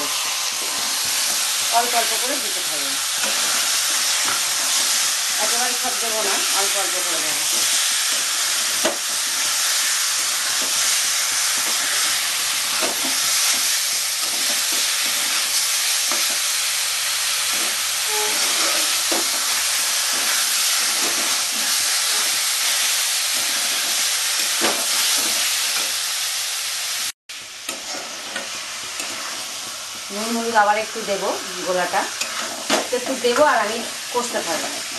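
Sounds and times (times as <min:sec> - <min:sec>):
chicken sizzling in a pan: 0:00.0 - 0:34.9
metal spatula scraping pan: 0:17.5 - 0:22.8, 0:27.7 - 0:29.7, 0:31.4 - 0:33.5.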